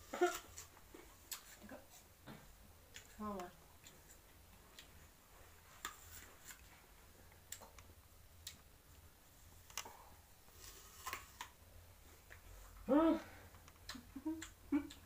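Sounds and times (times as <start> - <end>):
faint irregular clicks and ticks: 13.5 - 15.0.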